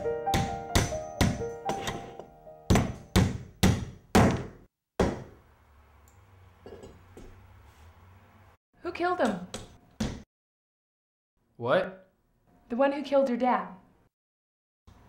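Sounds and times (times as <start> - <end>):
piano music: 0.0 - 3.2.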